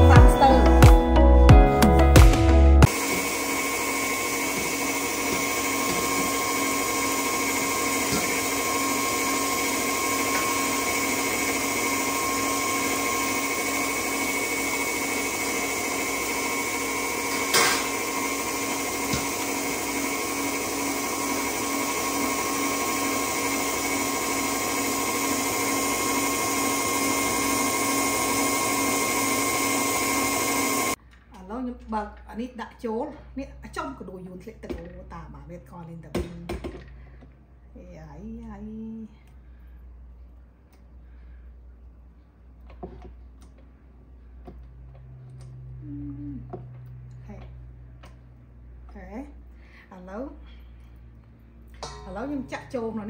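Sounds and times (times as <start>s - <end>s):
electric motor whining: 2.3s - 31.0s.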